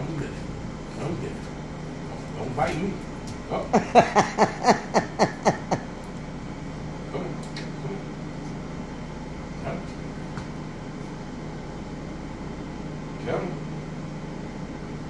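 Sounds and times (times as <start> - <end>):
low appliance hum: 0.0 - 15.0
woman laughing: 3.7 - 5.9.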